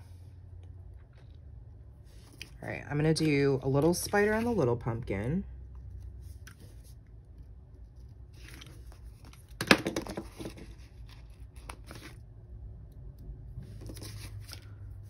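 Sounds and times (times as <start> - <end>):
paper sticker sheet rustling: 13.6 - 14.8.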